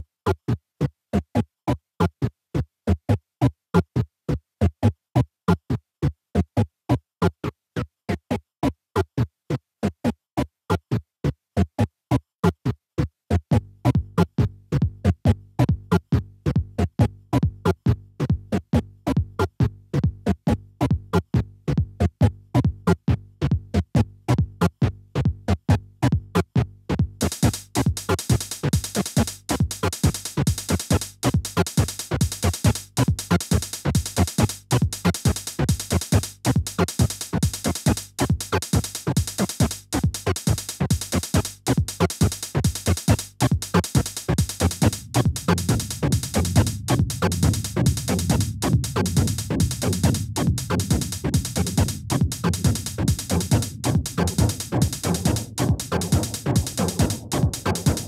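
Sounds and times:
fast pulse of low synth notes: 44.1 - 58.0.

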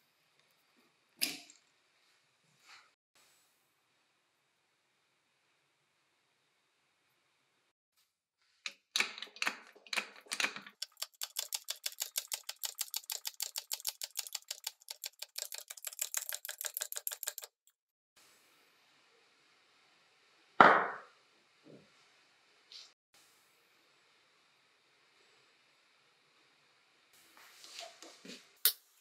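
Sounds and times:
fast even clicking: 10.3 - 17.7.

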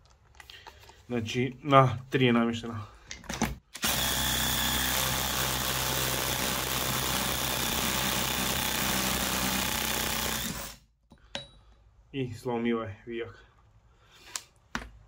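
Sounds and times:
impact driver hammering: 3.8 - 10.8.

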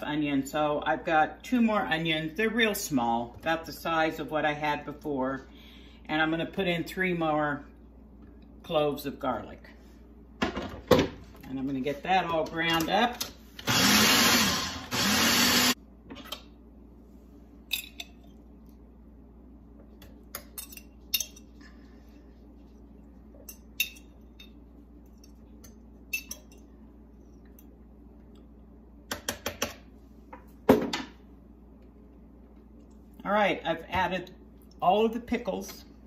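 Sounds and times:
food processor running: 13.6 - 15.8
spoon clinking against glass jar: 26.1 - 26.6.

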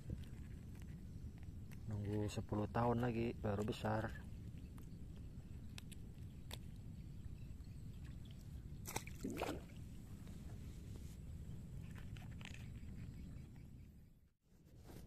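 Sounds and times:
fish splashing in water: 8.8 - 9.8.

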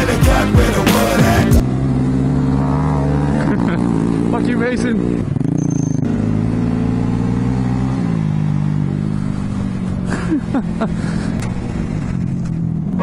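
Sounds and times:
mini bike engine revving: 1.7 - 13.0.

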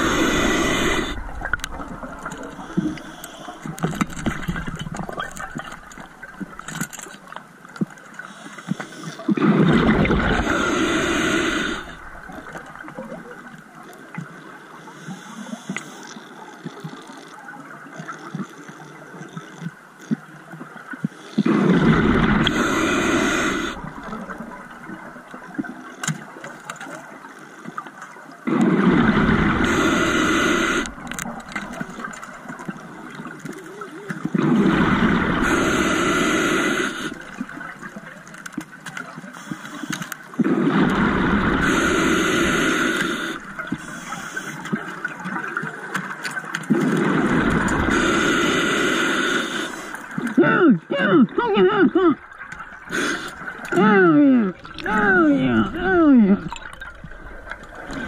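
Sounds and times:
diver inhaling through regulator: 0.0 - 1.7, 8.3 - 12.1, 21.3 - 24.5, 28.5 - 31.2, 34.4 - 37.4, 39.3 - 44.6, 46.8 - 50.1, 52.8 - 53.5
exhaled bubbles rushing: 9.3 - 13.4, 21.4 - 25.5, 28.4 - 33.3, 34.2 - 36.1, 40.3 - 44.2, 45.0 - 48.4, 54.5 - 58.0.

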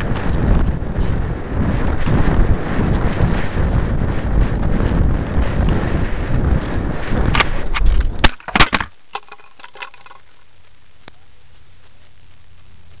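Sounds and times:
wind rushing over microphone: 0.0 - 10.2
faint clicks and rattles: 0.0 - 13.0.

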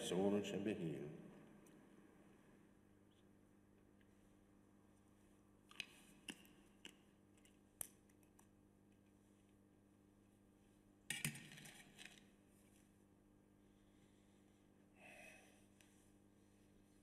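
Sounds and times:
faint room hum: 0.0 - 17.0.

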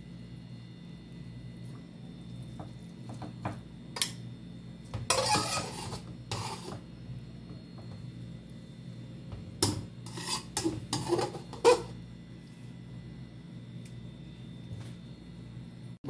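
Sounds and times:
metal utensil scraping metal pot: 5.1 - 6.8, 9.6 - 12.0.

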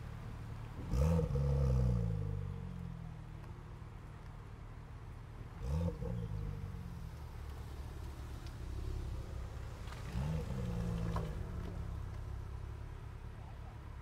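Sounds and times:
engine revving: 0.8 - 2.5, 9.9 - 11.7.

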